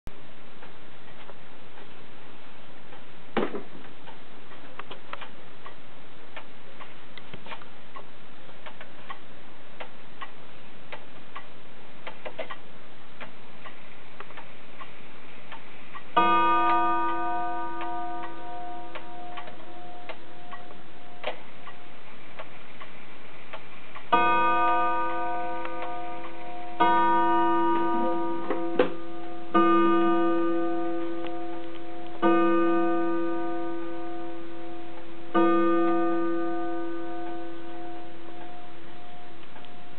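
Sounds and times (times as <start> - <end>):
wall clock ticking: 0.5 - 3.2, 3.8 - 39.9
clock gong striking: 16.2 - 21.9, 24.1 - 39.9.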